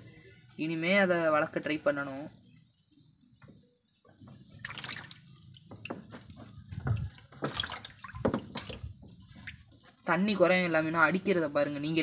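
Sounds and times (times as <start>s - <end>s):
water splashing and dripping: 4.1s - 10.1s.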